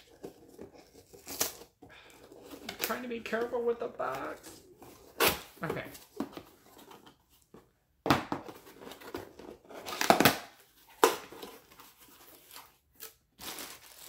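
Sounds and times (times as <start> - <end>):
cardboard rustling: 0.0 - 7.8, 8.4 - 14.0
packing tape tearing: 0.1 - 1.8.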